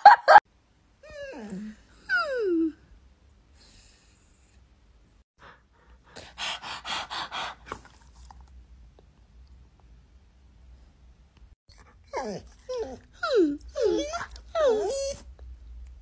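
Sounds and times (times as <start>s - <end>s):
rapid panting: 5.4s - 8.1s.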